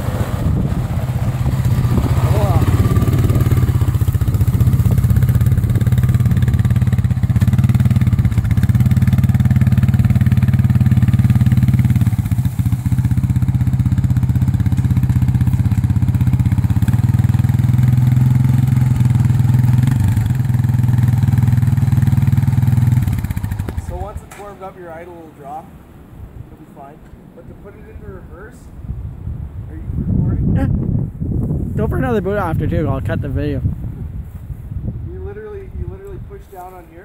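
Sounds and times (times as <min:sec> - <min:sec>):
quad bike engine running: 0:00.0 - 0:24.2.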